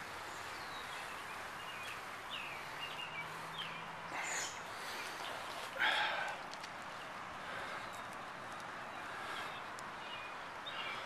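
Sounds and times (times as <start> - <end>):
outdoor background noise: 0.0 - 11.0
bird chirps: 0.3 - 5.4.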